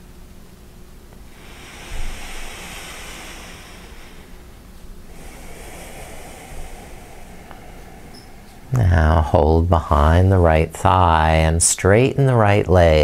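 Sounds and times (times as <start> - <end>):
person breathing deeply: 1.2 - 11.2.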